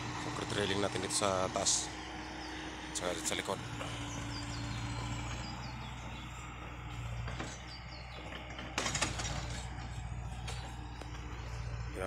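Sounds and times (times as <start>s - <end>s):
heavy machine engine idling: 0.0s - 12.0s
small birds chirping: 0.0s - 12.0s.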